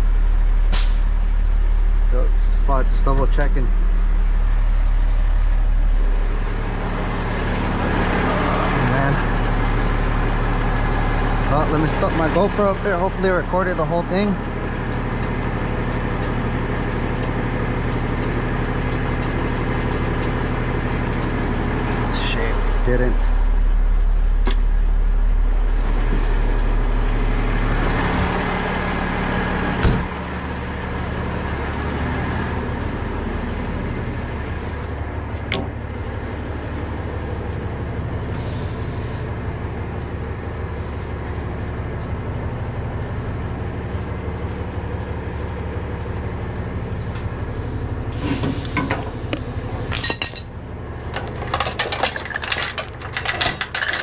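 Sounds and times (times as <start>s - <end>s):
diesel truck engine running: 0.0s - 54.0s
steel chains clinking: 49.9s - 50.5s, 51.1s - 54.0s.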